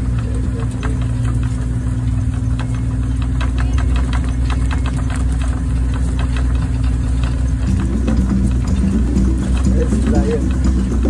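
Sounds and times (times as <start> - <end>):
rattles and clicks: 0.0 - 11.0
vehicle engine humming: 0.0 - 11.0.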